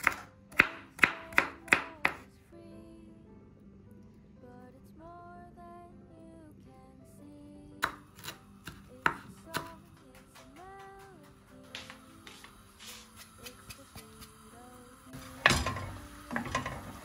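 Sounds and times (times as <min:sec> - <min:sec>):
knife chopping on wooden board: 0:00.0 - 0:02.2, 0:07.8 - 0:12.5
background music: 0:00.0 - 0:17.0.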